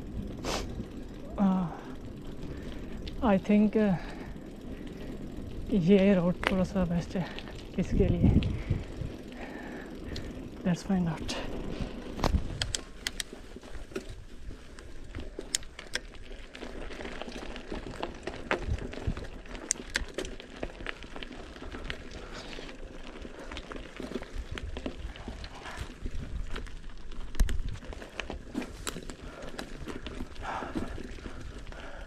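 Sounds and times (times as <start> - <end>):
bike rattling: 0.0 - 32.0
tyres crunching on loose stones: 0.0 - 32.0
sharp clicks and knocks: 12.2 - 13.3.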